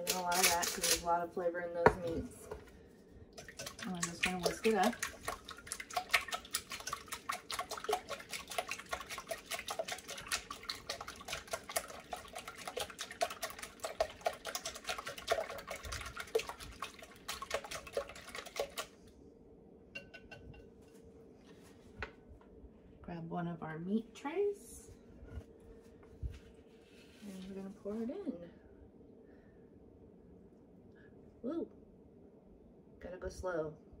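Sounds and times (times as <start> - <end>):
whisk clicking against bowl: 3.4 - 18.9.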